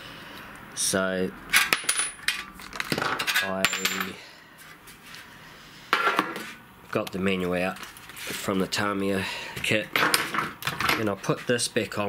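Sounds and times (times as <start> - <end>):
small metal parts clinking: 1.6 - 4.2.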